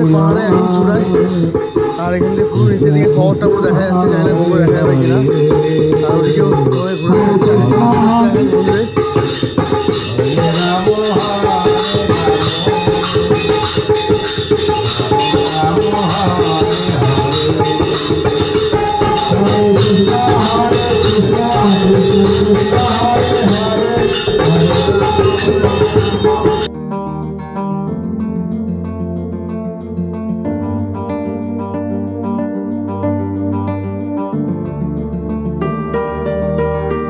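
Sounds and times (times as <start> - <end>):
jingling shaker percussion beat: 0.0 - 26.7
melody stepping up and down: 0.0 - 26.7.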